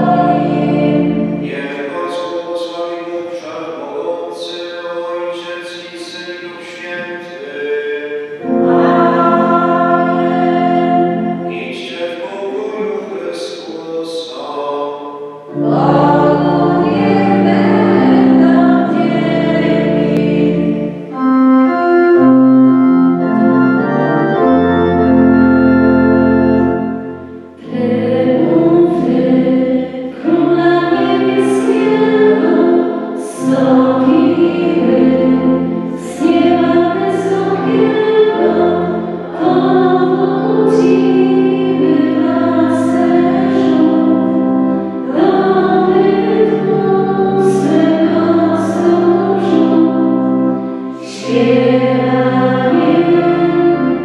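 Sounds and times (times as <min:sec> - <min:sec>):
organ playing chords: 0:00.0 - 0:54.0
voices singing a hymn: 0:00.0 - 0:54.0.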